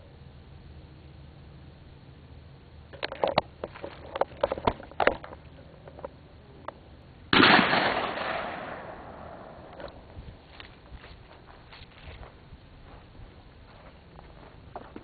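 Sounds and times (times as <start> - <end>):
sharp clicks and knocks: 2.9 - 6.2
shotgun shot echoing: 7.3 - 9.9.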